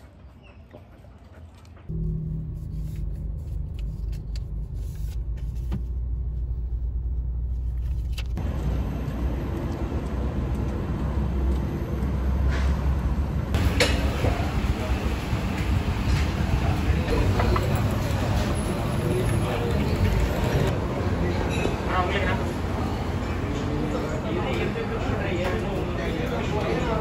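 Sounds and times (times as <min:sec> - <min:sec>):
car engine and tyres rumbling: 0:01.8 - 0:21.0.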